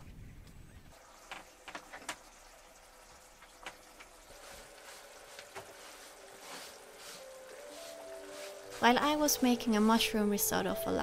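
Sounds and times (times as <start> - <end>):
food sizzling in a pan: 4.2 - 10.0.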